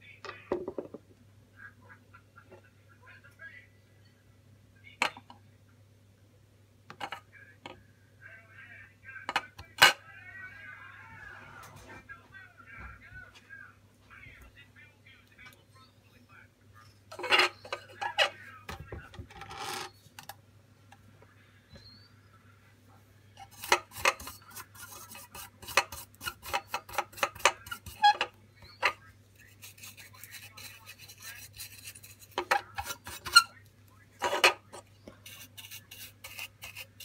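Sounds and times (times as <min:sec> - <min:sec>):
faint low hum: 0:00.0 - 0:37.0
bristle brush scrubbing: 0:23.4 - 0:33.5, 0:34.2 - 0:37.0.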